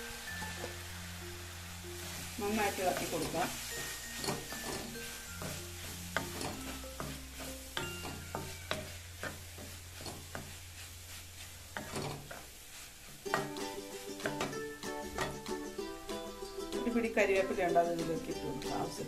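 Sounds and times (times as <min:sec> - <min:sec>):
light frying sizzle: 0:00.0 - 0:19.0
spatula scraping metal pan: 0:02.0 - 0:12.6.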